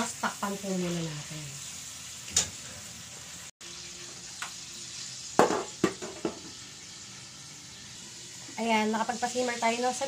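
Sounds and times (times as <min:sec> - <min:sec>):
chicken sizzling in a wok: 0:00.0 - 0:10.0
metal lid knocking on wok: 0:05.4 - 0:06.5.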